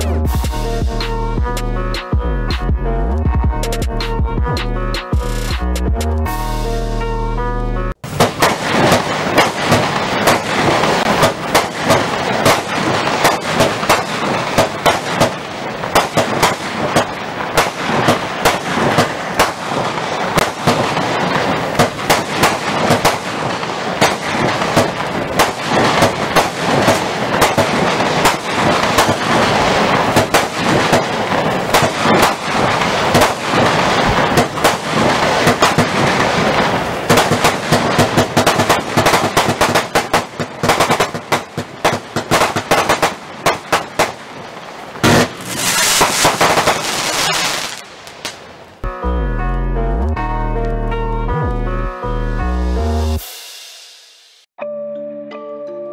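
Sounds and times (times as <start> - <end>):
fireworks crackling: 8.0 - 48.9
fireworks shots and bursts: 8.0 - 48.9.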